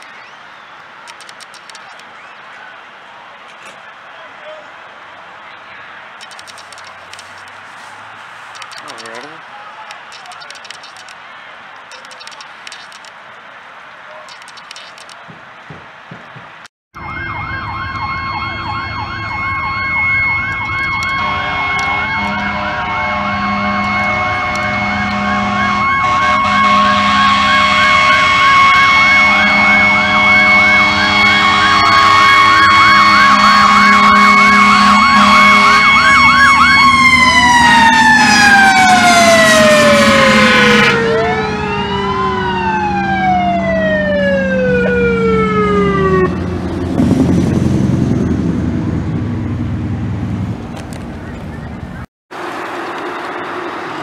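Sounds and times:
sirens yelping and wailing: 0:00.0 - 0:16.4, 0:17.0 - 0:54.0
outdoor background: 0:00.0 - 0:27.4
siren gliding downward: 0:17.0 - 0:50.4.

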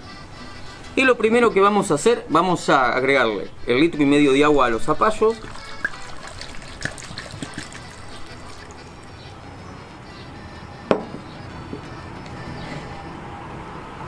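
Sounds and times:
water pouring into a pot: 0:04.8 - 0:09.1
sharp knock: 0:10.9 - 0:11.3.

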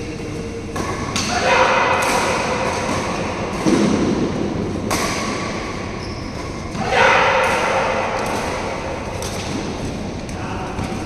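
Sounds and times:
hall noise: 0:00.0 - 0:06.0
racket striking shuttlecock: 0:00.7 - 0:04.0, 0:04.8 - 0:05.7, 0:06.3 - 0:09.8.

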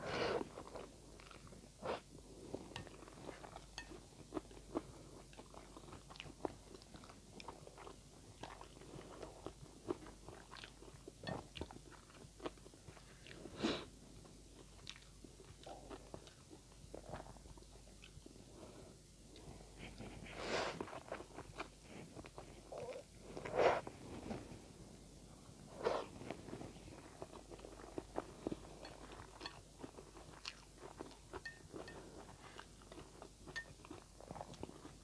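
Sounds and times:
close-up chewing noodles: 0:00.0 - 0:13.5, 0:14.1 - 0:23.6, 0:26.0 - 0:35.0.

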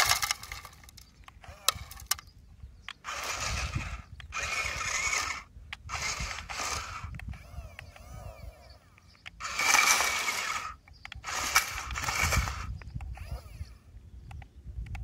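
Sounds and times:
small electric motors whirring: 0:00.0 - 0:02.3, 0:02.9 - 0:15.0
clicks: 0:08.8 - 0:13.4.

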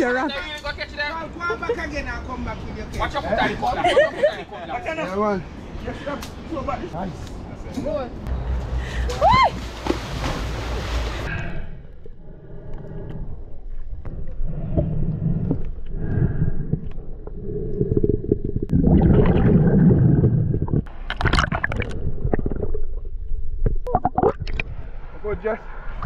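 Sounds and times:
underwater rumbling and gurgling: 0:10.5 - 0:25.2.

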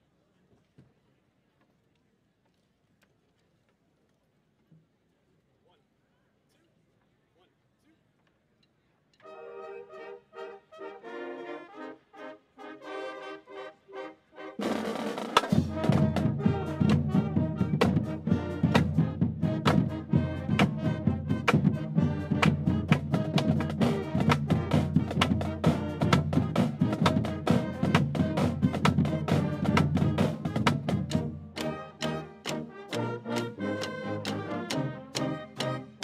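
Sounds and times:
marching band playing: 0:09.2 - 0:36.0
driving drum beat: 0:14.6 - 0:36.0.

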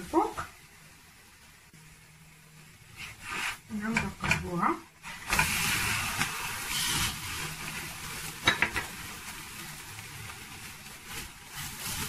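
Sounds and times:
pancake sizzling in a pan: 0:00.0 - 0:12.0.

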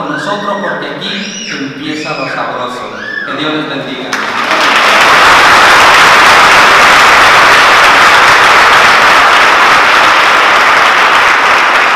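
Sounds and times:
crowd clapping: 0:04.1 - 0:11.9.

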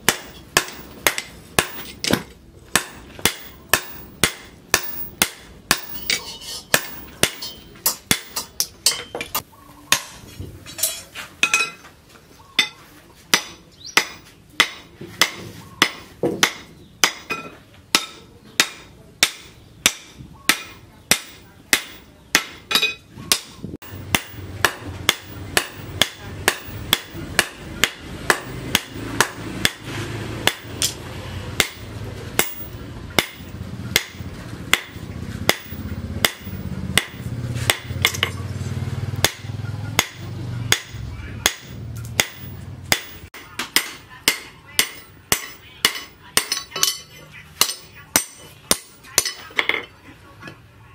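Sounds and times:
hammer striking metal anvil: 0:00.0 - 0:10.2, 0:10.8 - 0:11.8, 0:12.6 - 0:31.0, 0:31.6 - 0:38.4, 0:39.2 - 0:49.9.

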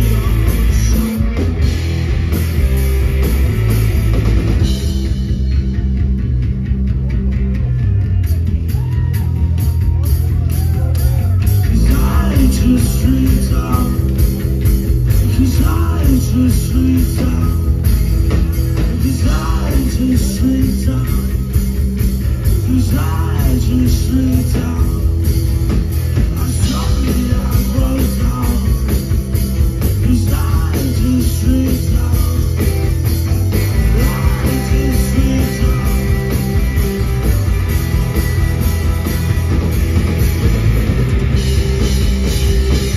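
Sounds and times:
lead singer's voice: 0:00.0 - 0:01.7, 0:10.8 - 0:18.0, 0:18.8 - 0:21.8, 0:22.4 - 0:36.9
live rock band playing: 0:00.0 - 0:42.9.

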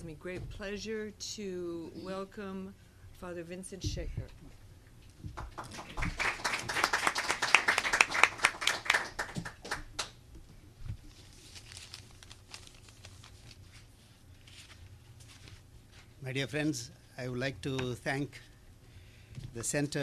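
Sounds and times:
audience applauding: 0:05.4 - 0:10.1.

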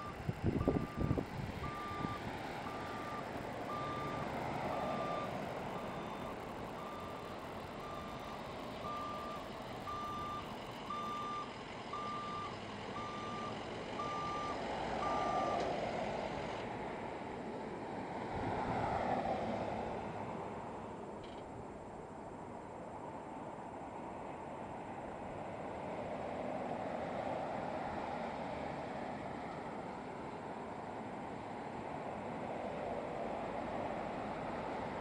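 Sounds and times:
reversing alarm beeping: 0:00.0 - 0:15.6
passing vehicles: 0:00.0 - 0:35.0
traffic on busy road: 0:00.0 - 0:35.0.

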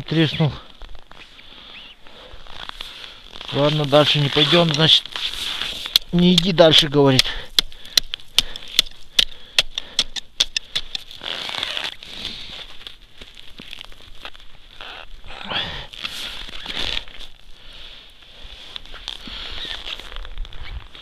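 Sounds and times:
scraping and crunching ice: 0:02.4 - 0:07.3, 0:10.0 - 0:15.0, 0:15.9 - 0:17.4, 0:18.5 - 0:21.0
metal tip tapping ice: 0:05.8 - 0:11.1.

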